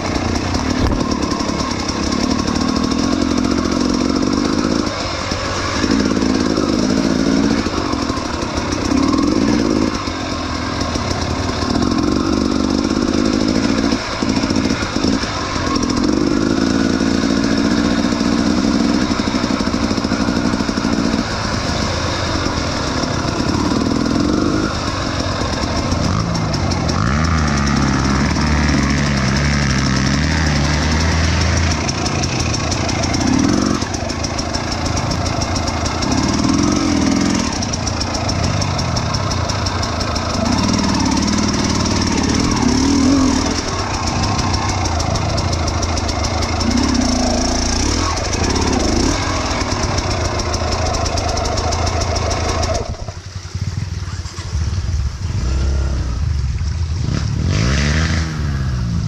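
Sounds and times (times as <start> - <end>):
motorbike engines revving: 0.0 - 59.0.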